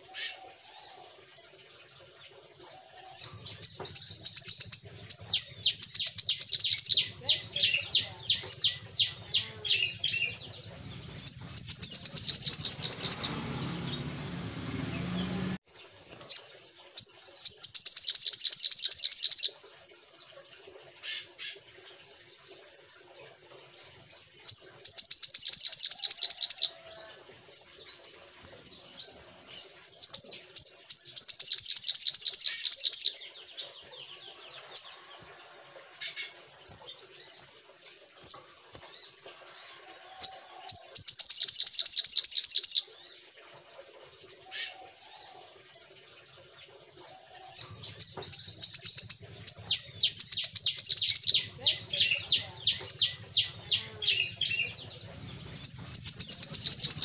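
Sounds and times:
bird chips and twitters: 0:03.2 - 0:14.2, 0:47.7 - 0:57.0
bird buzzing trills: 0:03.6 - 0:15.6.

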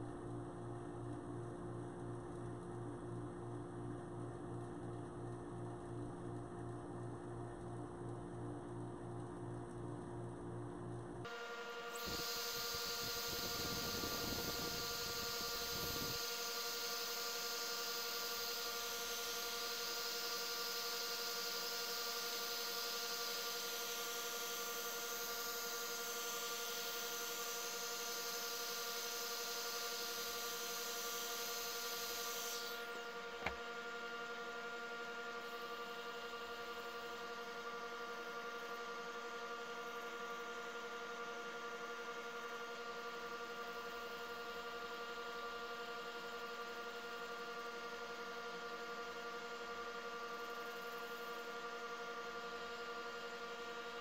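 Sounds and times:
wood lathe whine: 0:11.3 - 0:54.0
sanding disc hissing: 0:11.8 - 0:24.5, 0:27.3 - 0:33.6.

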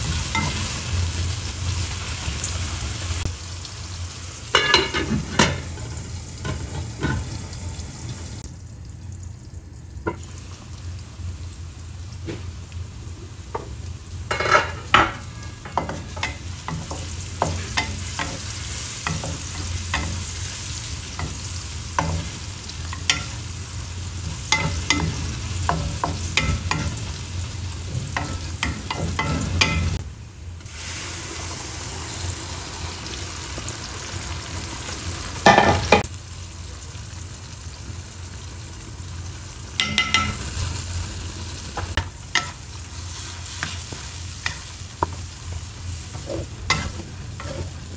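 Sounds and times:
onions sizzling in oil: 0:00.0 - 0:47.9
spatula scraping and knocking pan: 0:46.1 - 0:47.9.

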